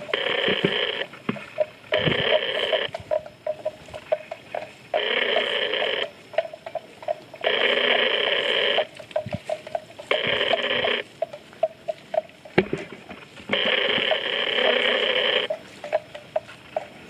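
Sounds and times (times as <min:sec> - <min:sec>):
loud buzzing call: 0:00.0 - 0:01.2, 0:01.8 - 0:03.0, 0:04.9 - 0:06.1, 0:07.4 - 0:08.9, 0:10.1 - 0:11.0, 0:13.5 - 0:15.6
wooden bell clonking: 0:01.4 - 0:07.4.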